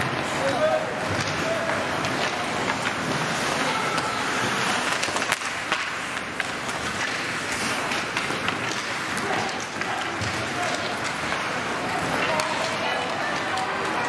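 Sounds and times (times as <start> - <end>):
arena noise: 0.0 - 14.0
hockey sticks and puck clicking: 0.0 - 14.0
loud puck crack: 0.0 - 14.0
skates hissing on ice: 1.7 - 9.2.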